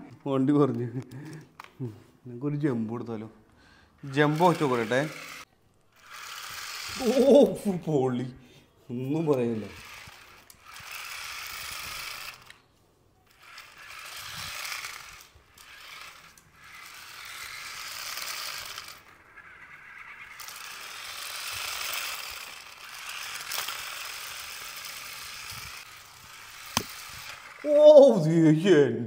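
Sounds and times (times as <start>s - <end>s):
toy truck motor whirring: 4.0s - 7.6s, 9.2s - 12.6s, 13.2s - 28.1s.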